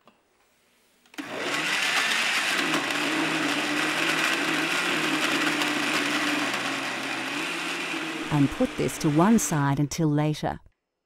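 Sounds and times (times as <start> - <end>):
blender motor humming: 1.2 - 9.7.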